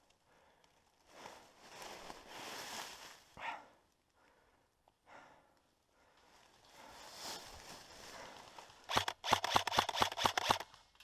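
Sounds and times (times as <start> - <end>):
airsoft rifle shots: 8.9 - 10.7.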